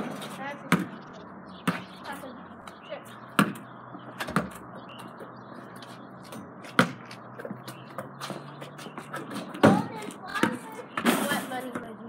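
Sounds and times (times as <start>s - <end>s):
basketball bouncing: 0.6s - 1.0s, 1.6s - 1.9s, 3.3s - 3.6s, 4.2s - 4.6s, 6.3s - 10.7s.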